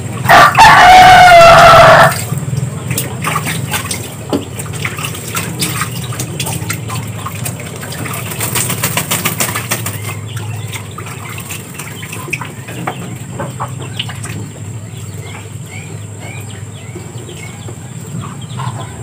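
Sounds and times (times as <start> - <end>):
ducks splashing water: 0.0 - 19.0
steady low hum: 0.0 - 19.0
wing flapping: 2.9 - 12.5.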